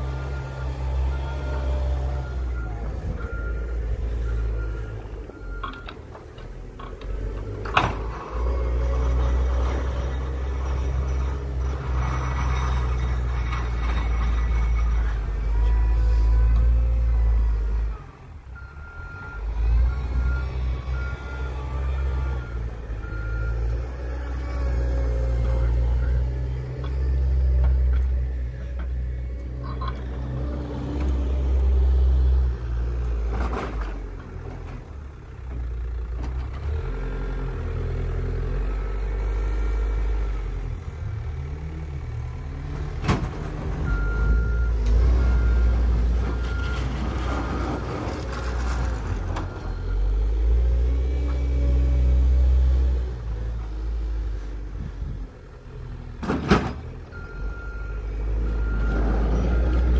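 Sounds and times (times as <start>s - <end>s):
wheel loader diesel engine: 0.0s - 59.9s
reversing alarm beeping: 49.5s - 50.4s, 57.1s - 59.9s.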